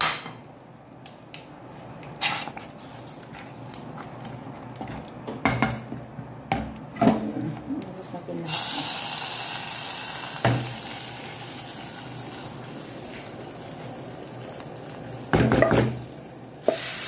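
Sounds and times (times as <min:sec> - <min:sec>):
spoon knocking against metal pot: 0:15.4 - 0:16.0.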